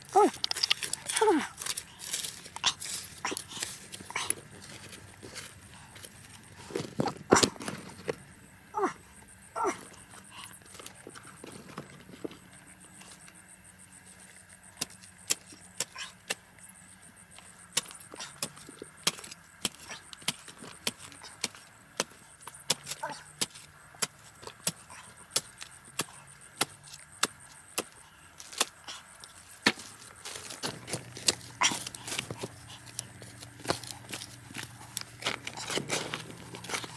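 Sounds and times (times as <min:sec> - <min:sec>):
shovel digging stony soil: 0:00.0 - 0:08.2, 0:17.3 - 0:36.9.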